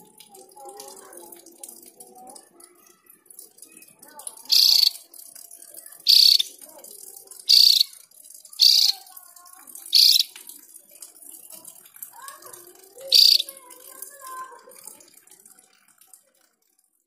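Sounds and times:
bird giving harsh rasping calls: 4.4s - 5.1s, 6.0s - 6.6s, 7.5s - 8.0s, 8.6s - 9.1s, 9.9s - 10.4s, 13.1s - 13.6s.

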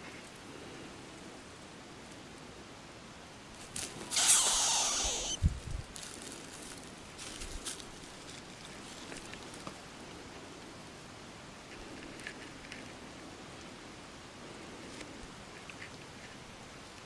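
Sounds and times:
faint outdoor hiss: 0.0s - 17.0s
soft ticks and rustles: 5.4s - 10.8s, 11.6s - 17.0s.

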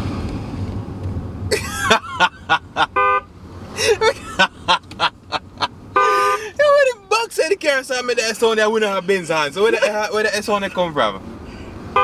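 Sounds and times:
bursts of laughter: 1.5s - 3.0s, 3.8s - 6.8s
car horn honk from a speaker: 3.0s - 3.3s, 6.0s - 6.4s.

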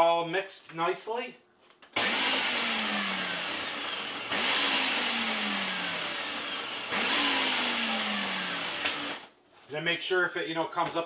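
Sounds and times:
blender motor pulsing: 2.0s - 9.3s.

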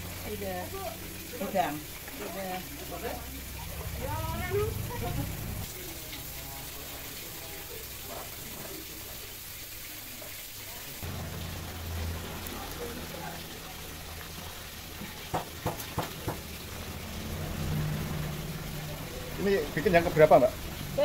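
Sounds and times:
hot oil sizzling: 0.0s - 21.0s
low hum: 3.1s - 5.9s.

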